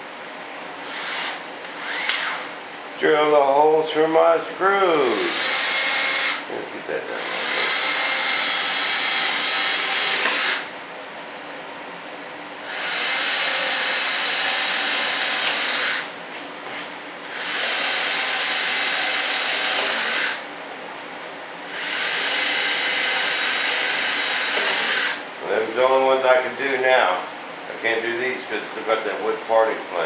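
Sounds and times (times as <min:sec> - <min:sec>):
cordless drill drilling: 0:00.8 - 0:02.5, 0:05.2 - 0:06.4, 0:07.1 - 0:10.7, 0:12.6 - 0:16.1, 0:17.3 - 0:20.4, 0:21.7 - 0:25.2.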